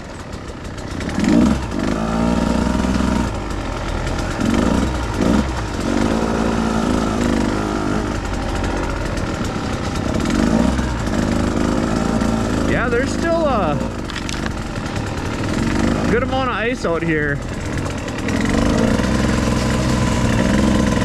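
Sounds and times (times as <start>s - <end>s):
dirt bike engine revving: 0.0s - 21.0s.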